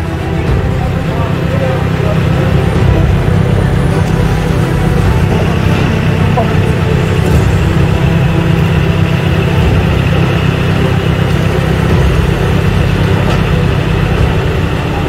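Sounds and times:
truck diesel engine running: 0.0s - 15.0s.

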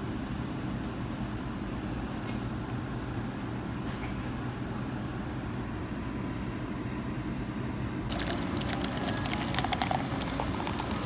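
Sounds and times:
soda fizzing in a cup: 8.1s - 11.0s.

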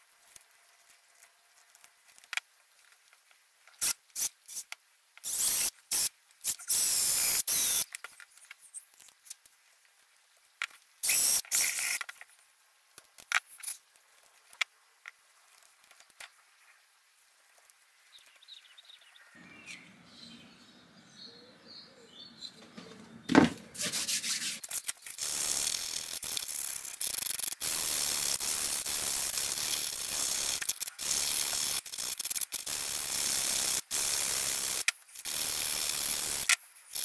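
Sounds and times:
knife blade scraping wood: 23.3s - 25.0s.

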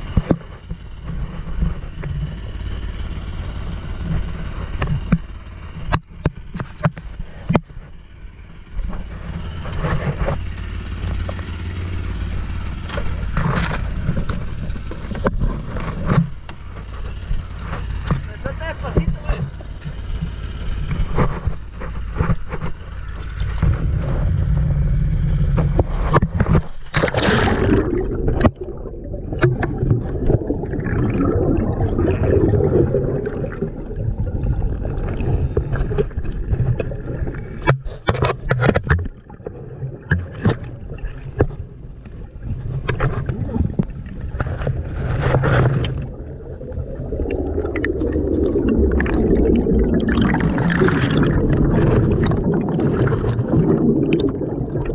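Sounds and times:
low underwater rumble: 0.0s - 54.9s
splashing and bubbles: 12.8s - 54.9s
bubbles gurgling: 23.8s - 54.9s.

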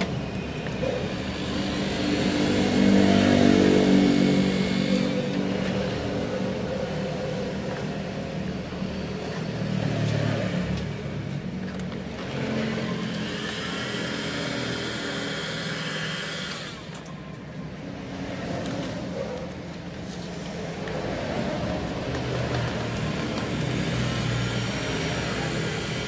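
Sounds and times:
heat gun whirring: 1.0s - 5.7s, 12.6s - 17.1s, 23.5s - 26.0s.

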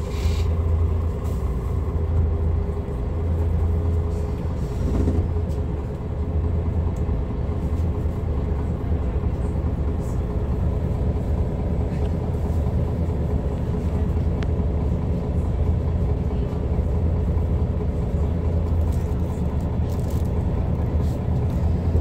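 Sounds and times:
bus diesel engine rumbling: 0.0s - 22.0s.

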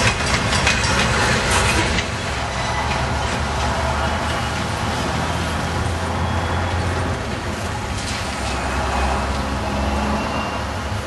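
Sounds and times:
freight cars rolling on rails: 0.0s - 11.0s.

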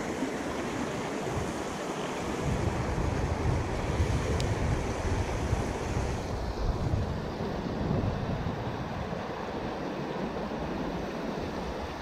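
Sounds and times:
creek water rushing over rocks: 0.0s - 12.0s
wind buffeting microphone: 0.0s - 12.0s.

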